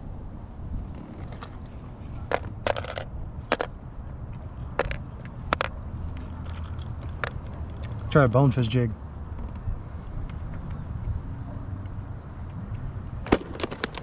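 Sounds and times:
steady low rumble: 0.0s - 13.3s
plastic tackle boxes clicking: 2.3s - 3.7s, 4.8s - 5.7s.

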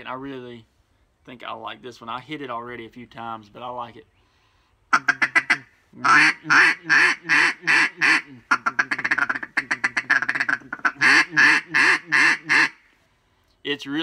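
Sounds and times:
duck call quacks: 4.9s - 12.9s.

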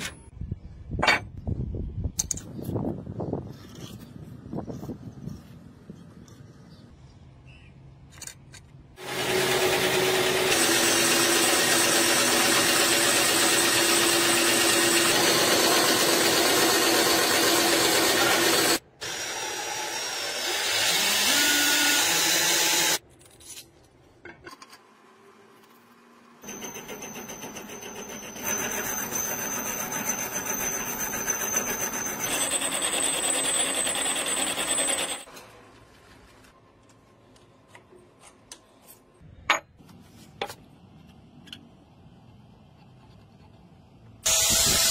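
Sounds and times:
power tool high whine: 9.0s - 23.0s, 44.3s - 44.9s
power tool motor rising in pitch: 9.0s - 23.0s, 44.2s - 44.9s
saw cutting brass plate: 9.0s - 23.0s, 26.4s - 35.3s, 44.3s - 44.9s.

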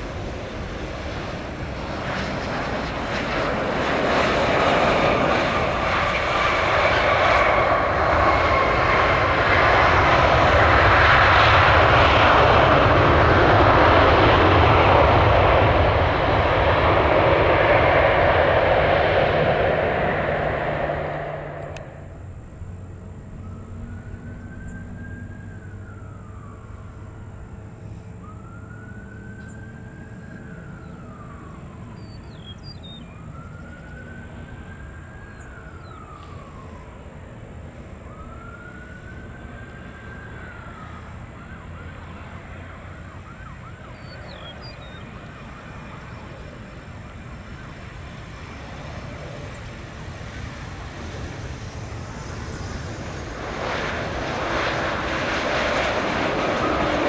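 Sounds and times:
steady low rumble: 0.0s - 25.2s
approaching aircraft noise: 0.0s - 57.0s
emergency siren wailing and yelping: 22.8s - 57.0s.

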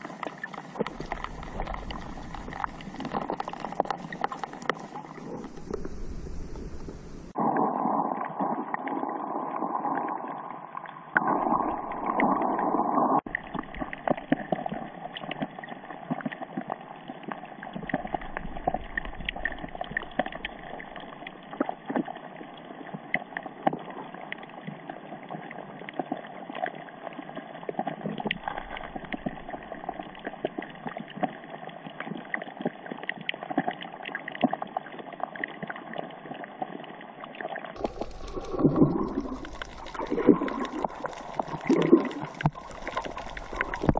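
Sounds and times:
muffled underwater rushing water: 0.0s - 43.9s
sharp crackling clicks: 0.1s - 7.0s, 37.8s - 43.9s.

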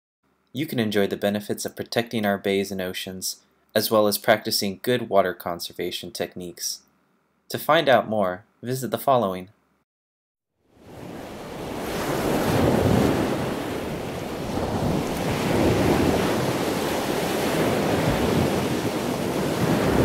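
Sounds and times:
ocean waves washing: 10.8s - 20.0s.

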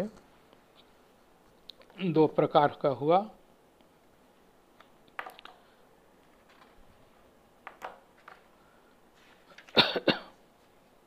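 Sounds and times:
man coughing: 9.7s - 10.4s.

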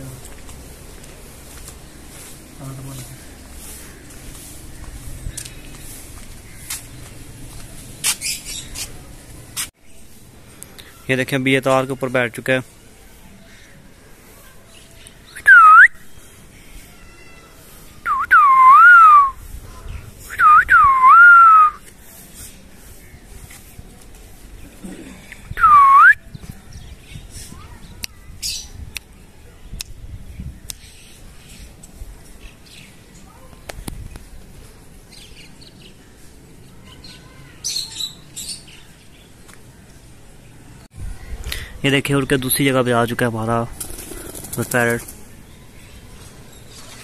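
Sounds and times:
loud whistles: 18.1s - 19.4s, 20.3s - 21.8s.

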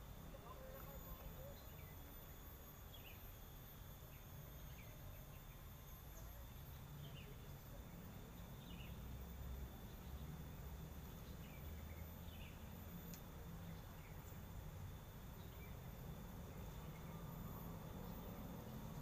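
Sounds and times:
insects buzzing: 0.0s - 19.0s.

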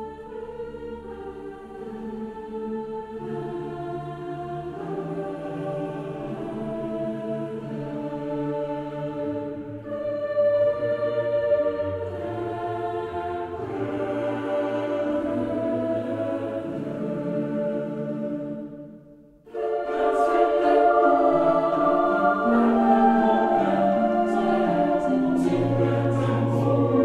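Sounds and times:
slow sustained music chords: 19.5s - 27.0s.

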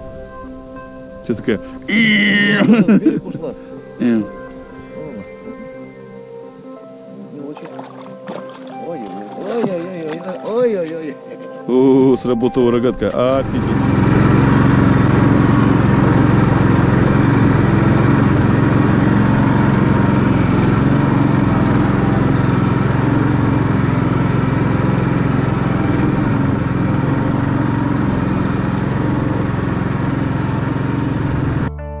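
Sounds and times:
vehicle engine droning: 13.0s - 31.7s.

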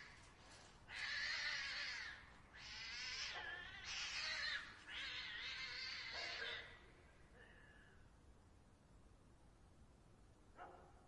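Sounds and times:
cats yowling and screeching: 0.9s - 6.8s.

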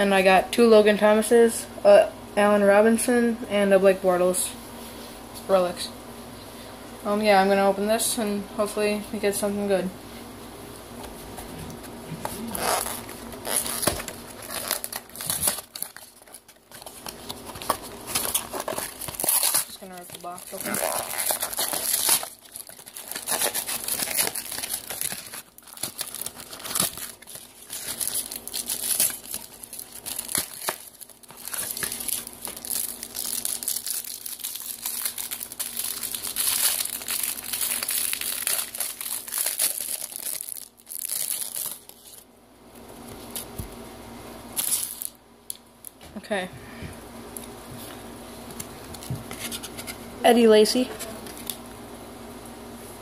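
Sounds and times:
plastic wrap crinkling: 12.2s - 42.2s, 44.6s - 45.6s.

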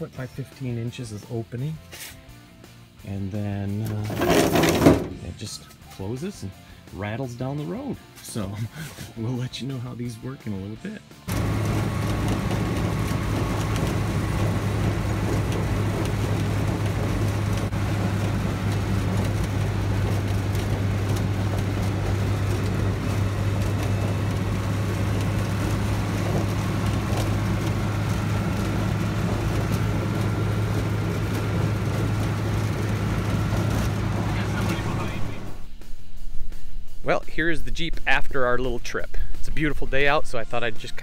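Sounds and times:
light rattles: 11.3s - 35.4s
car engine droning while driving: 11.3s - 35.8s.

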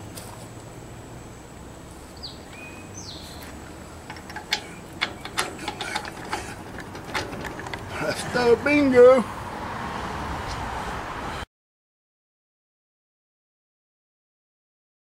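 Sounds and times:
bird chirping: 2.1s - 6.8s
metal clicks and clinks: 4.0s - 8.3s.

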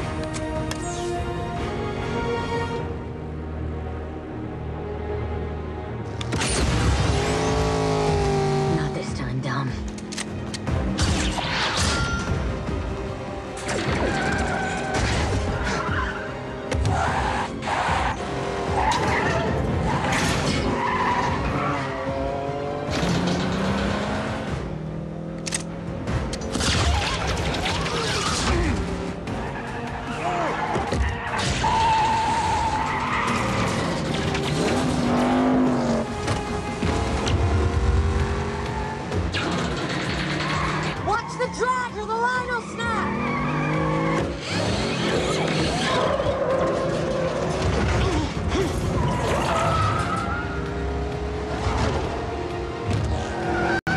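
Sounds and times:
background music: 0.0s - 53.9s
car engines running hard: 3.0s - 11.4s, 12.3s - 53.9s
tyres squealing and skidding: 13.6s - 24.0s, 26.6s - 36.2s, 38.4s - 52.0s, 52.9s - 53.9s.

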